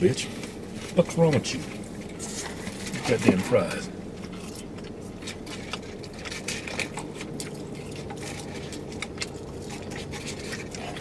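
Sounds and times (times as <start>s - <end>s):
steady low hum: 0.0s - 11.0s
chewing: 4.0s - 11.0s.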